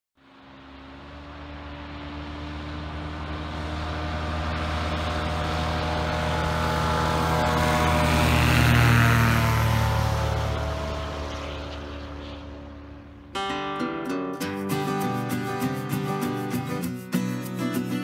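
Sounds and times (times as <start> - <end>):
propeller airplane engines: 0.2 - 13.4.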